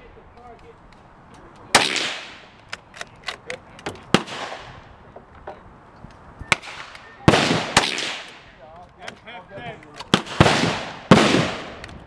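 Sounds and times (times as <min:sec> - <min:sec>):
sharp crack: 0:01.6 - 0:04.9, 0:06.5 - 0:12.0
rifle shots with echo: 0:01.7 - 0:02.4, 0:04.1 - 0:04.7, 0:06.5 - 0:08.4, 0:10.1 - 0:11.8.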